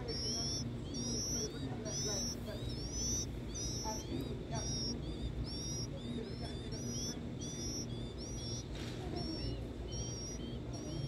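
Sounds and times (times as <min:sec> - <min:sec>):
nestlings peeping: 0:00.0 - 0:11.0.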